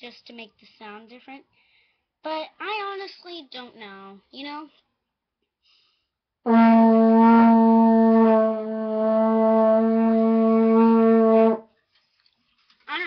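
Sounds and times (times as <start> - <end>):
french horn sustained note: 6.5 - 11.6.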